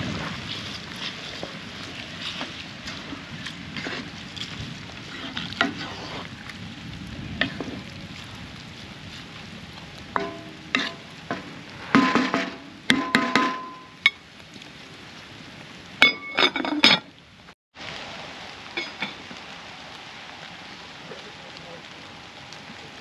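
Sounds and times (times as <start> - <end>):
food sizzling in a pan: 2.2 - 14.3, 17.8 - 23.0.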